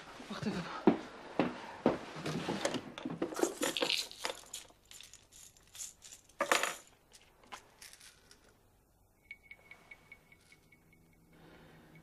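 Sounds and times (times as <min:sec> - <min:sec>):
pill containers rattling: 0:03.3 - 0:08.6.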